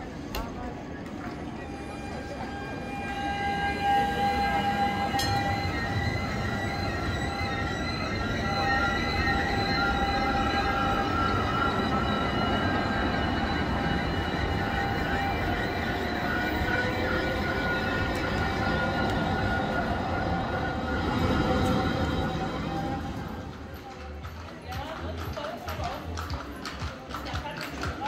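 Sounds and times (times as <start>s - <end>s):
trams passing with high whine: 0.0s - 28.0s.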